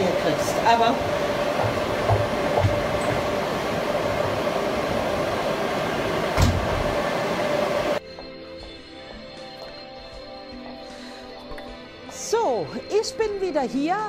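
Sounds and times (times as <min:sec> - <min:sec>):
background music: 0:00.0 - 0:03.0, 0:07.5 - 0:14.0
constant hum: 0:00.0 - 0:08.0
equipment fans rushing: 0:00.0 - 0:08.0
knock: 0:01.6 - 0:02.9.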